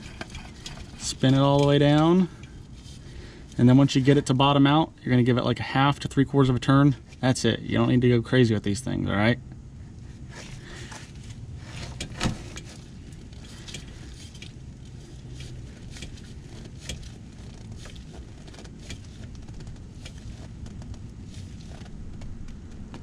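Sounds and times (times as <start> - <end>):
clicks and rubbing of oil filter: 0.0 - 4.5, 10.0 - 23.0
steady low hum: 0.0 - 23.0.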